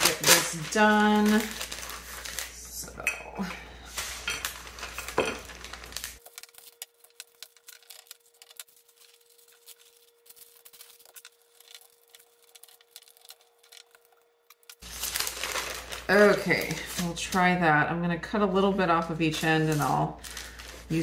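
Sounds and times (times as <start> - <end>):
parchment paper crinkling: 0.0 - 17.6, 18.6 - 21.0.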